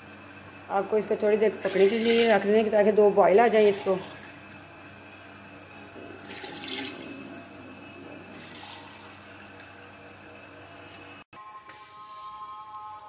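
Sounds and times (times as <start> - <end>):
water bubbling in pot: 1.5 - 4.7, 6.1 - 9.6.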